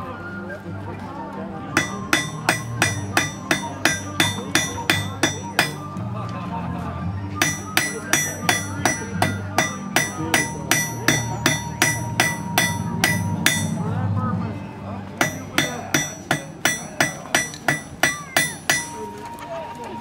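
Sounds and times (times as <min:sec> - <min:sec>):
hammer striking iron on anvil: 0:01.8 - 0:05.9, 0:07.4 - 0:13.9, 0:15.2 - 0:19.0.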